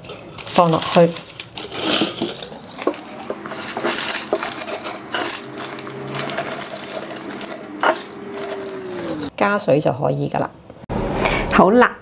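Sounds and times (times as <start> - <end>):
onion skins crinkling: 0.0 - 9.3.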